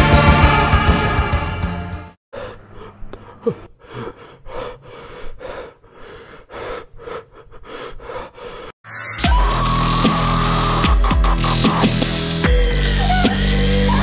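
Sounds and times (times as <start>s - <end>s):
person breathing hard: 2.3s - 8.8s.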